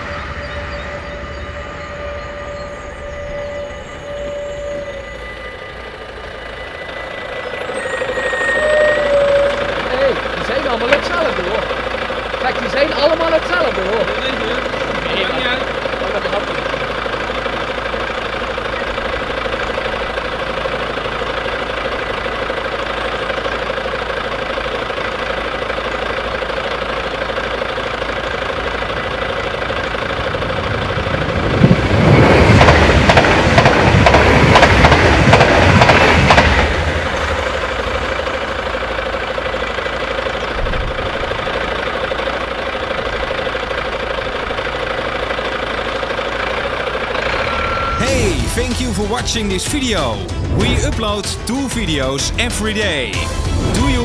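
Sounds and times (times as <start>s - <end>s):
level-crossing bells ringing: 0.0s - 20.8s, 46.8s - 54.0s
passenger train passing: 0.0s - 54.0s.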